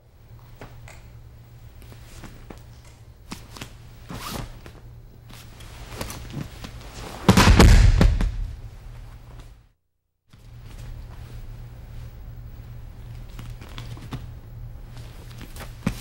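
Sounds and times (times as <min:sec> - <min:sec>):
low tape hum: 0:00.0 - 0:09.6, 0:10.3 - 0:16.0
feet shuffling on a mat: 0:03.3 - 0:07.4, 0:10.3 - 0:16.0
uniforms rustling: 0:03.3 - 0:07.5
body falling on a mat: 0:05.4 - 0:09.5.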